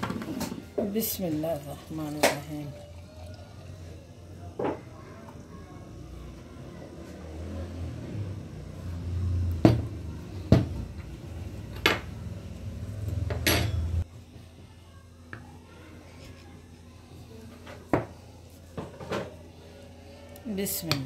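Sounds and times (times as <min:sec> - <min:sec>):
milkshake pouring rumble: 0:00.8 - 0:04.3.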